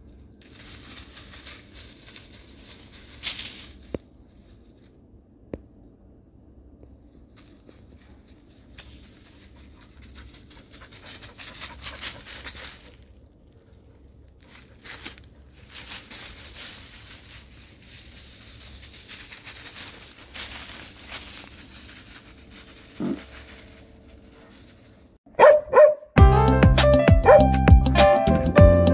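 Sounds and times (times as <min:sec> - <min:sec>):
dry leaves rustling underfoot: 0:00.0 - 0:05.5, 0:06.8 - 0:25.2
dog barking loudly: 0:25.3 - 0:26.1, 0:27.2 - 0:27.4.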